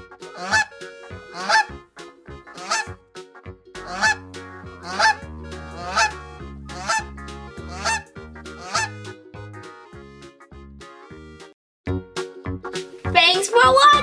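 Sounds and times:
background music with bass: 0.0 - 14.0
geese honking: 0.2 - 1.8, 2.4 - 3.0, 3.8 - 9.1.

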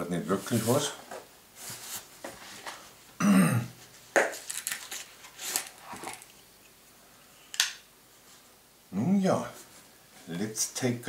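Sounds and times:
scraping and rustling: 0.2 - 3.0, 3.8 - 6.4
man's throat sound: 3.2 - 3.8.

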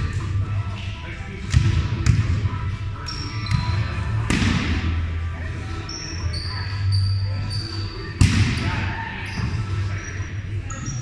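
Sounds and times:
sneakers squeaking on hardwood: 3.1 - 4.0.

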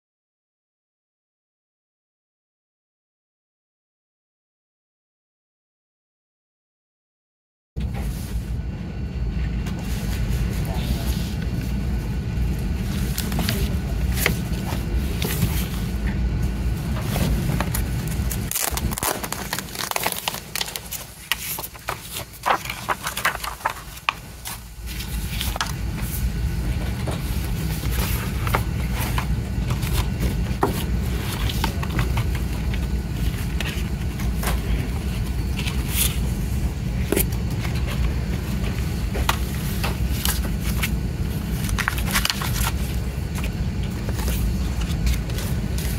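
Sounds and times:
steady low rumble: 7.8 - 45.9
plastic wrap crinkling: 16.6 - 26.0.

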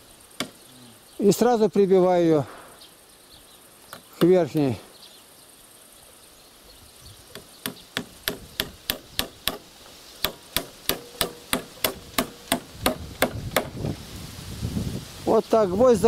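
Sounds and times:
hammer driving nails into wood: 7.3 - 9.6, 10.2 - 13.8.

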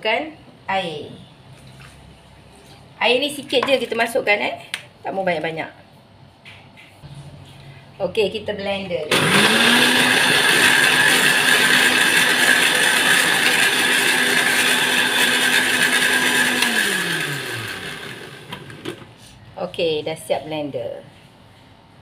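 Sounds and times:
blender motor running: 9.1 - 19.0.

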